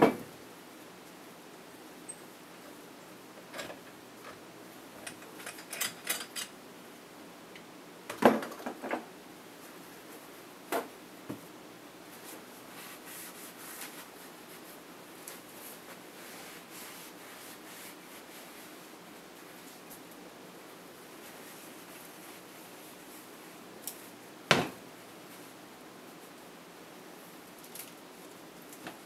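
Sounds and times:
paper towel rustling: 12.1s - 19.9s.

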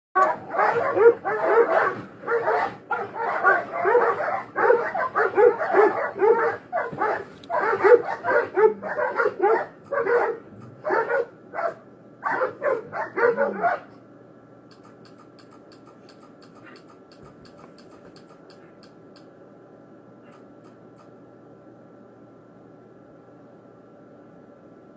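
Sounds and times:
dogs barking and snarling: 0.2s - 14.0s
faint steady hum: 0.2s - 24.9s.

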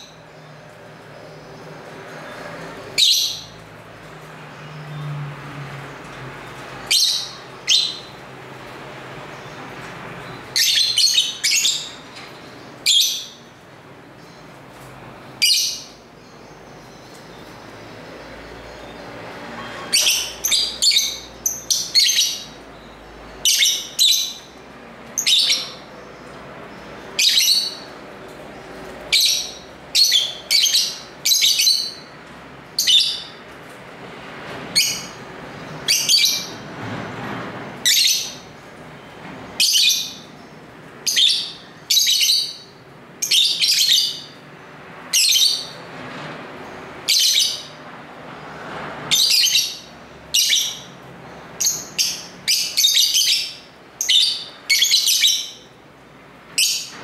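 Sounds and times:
lovebirds chirping: 6.4s - 33.4s, 39.6s - 44.5s, 49.1s - 55.8s.

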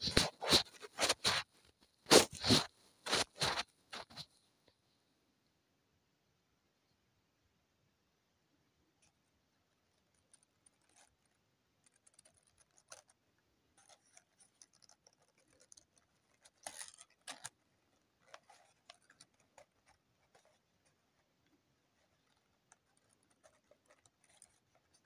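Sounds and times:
paper crinkling: 0.0s - 4.4s, 10.1s - 13.2s, 13.8s - 25.0s.

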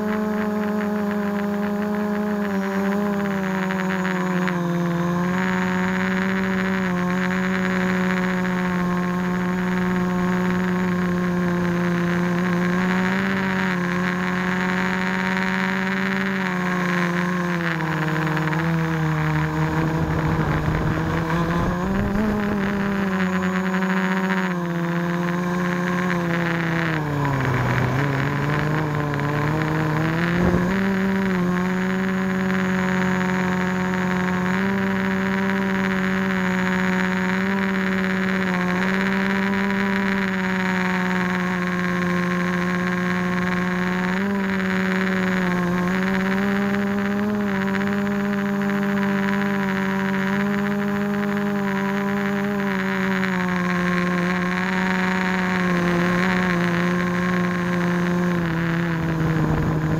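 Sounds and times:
drone motors and propellers whining: 0.0s - 59.9s
low rumbling gusts: 19.6s - 23.2s, 26.4s - 32.4s.

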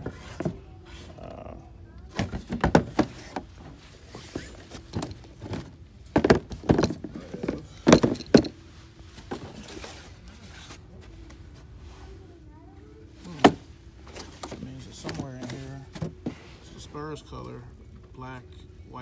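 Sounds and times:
cardboard boxes thudding: 2.1s - 3.6s, 4.3s - 8.6s.

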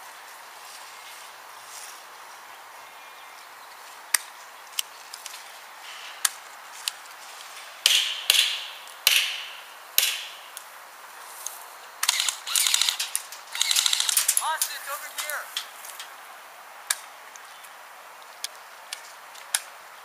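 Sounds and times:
airsoft guns firing: 7.8s - 10.5s.

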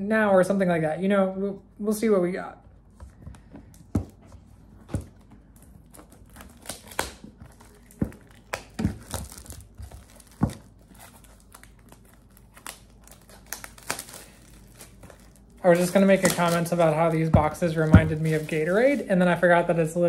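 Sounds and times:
plastic wrap crinkling and tearing: 5.0s - 19.7s.

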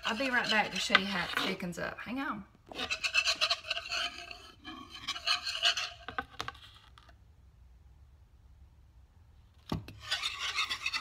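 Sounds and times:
whisk scraping in a wooden bowl: 0.0s - 1.8s, 2.7s - 6.6s, 9.9s - 11.0s.

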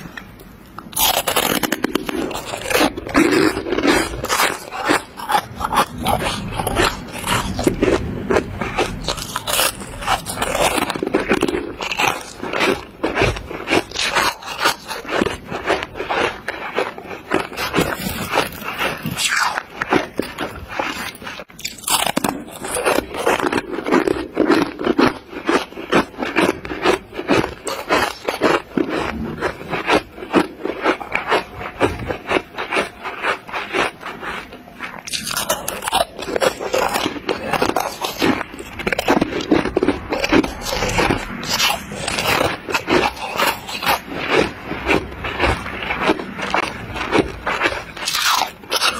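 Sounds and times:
frost being crunched by chewing: 0.1s - 48.9s.

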